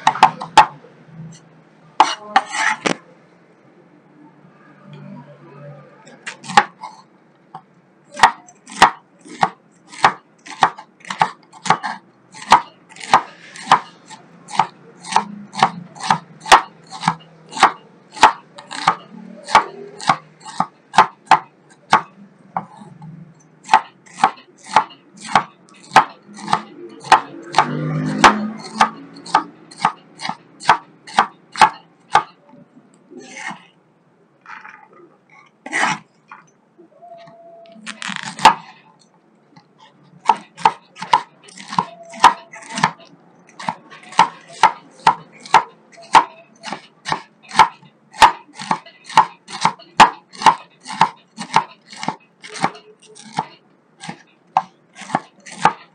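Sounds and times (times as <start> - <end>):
cleaver chopping on wooden board: 0.0 - 0.8, 6.4 - 6.8, 8.2 - 13.9, 14.5 - 22.8, 23.6 - 32.4, 38.0 - 38.7, 40.2 - 55.9.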